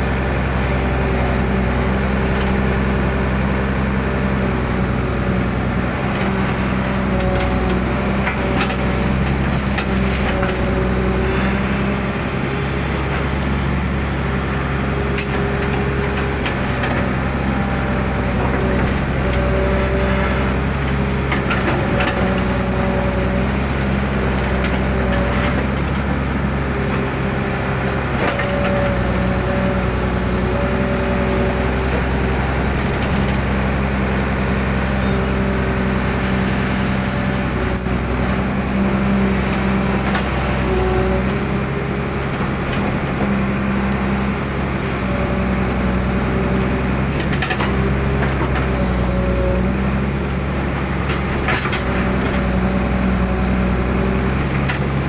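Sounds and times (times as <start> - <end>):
diesel engine under load: 0.0 - 55.0
hydraulic whine: 0.0 - 55.0.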